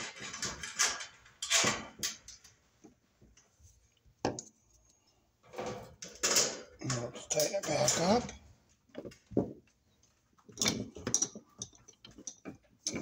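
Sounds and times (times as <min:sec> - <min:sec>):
metal scraping and rattling: 0:00.0 - 0:02.5, 0:05.5 - 0:08.4.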